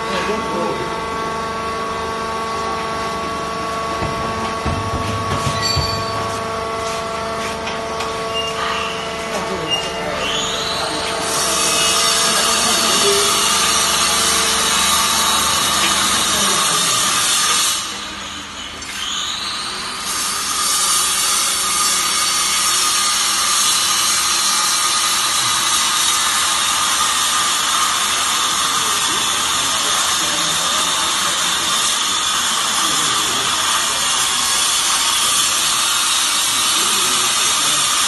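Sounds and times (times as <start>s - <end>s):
machinery high whine: 0.0s - 38.0s
baler machinery hissing: 8.4s - 17.2s.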